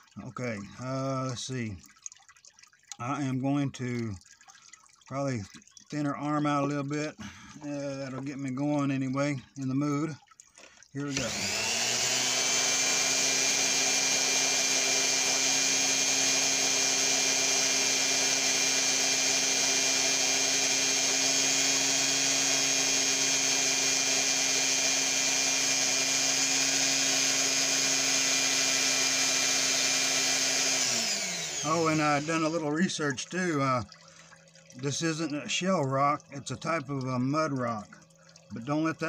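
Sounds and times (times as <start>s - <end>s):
rotary tool grinding rock: 11.1s - 32.9s.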